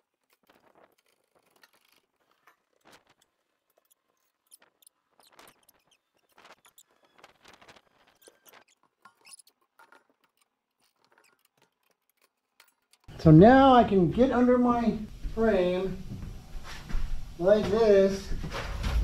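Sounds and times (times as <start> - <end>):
hoist chain clicks and scrapes: 0.0 - 7.3, 7.9 - 13.1.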